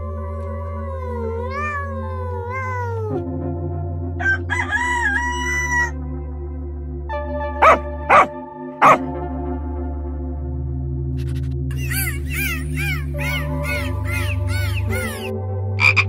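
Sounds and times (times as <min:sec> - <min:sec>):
background music: 0:00.0 - 0:16.0
cat meowing: 0:01.0 - 0:03.2, 0:07.6 - 0:09.0, 0:12.9 - 0:15.3
rooster crowing: 0:04.2 - 0:05.9, 0:07.6 - 0:09.0
dog barking: 0:07.6 - 0:09.1.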